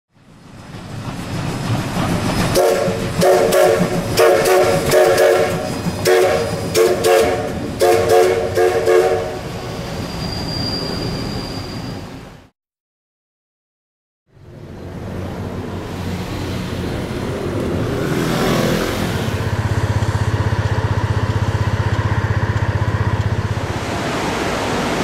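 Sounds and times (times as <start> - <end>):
steam locomotive working: 0.2 - 12.5, 14.4 - 25.0
steam whistle toots: 2.6 - 12.1.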